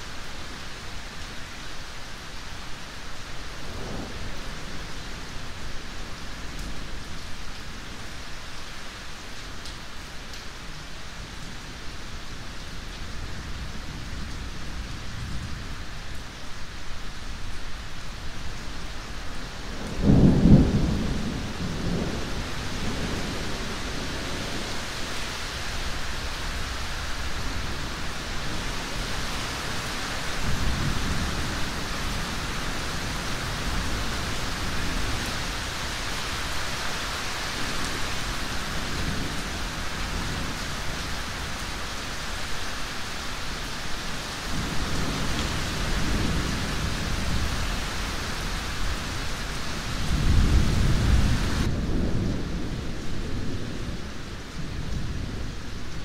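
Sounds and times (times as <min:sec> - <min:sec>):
heavy rain: 0:00.0 - 0:56.0
thunder rumbling: 0:19.7 - 0:24.8, 0:50.0 - 0:55.7.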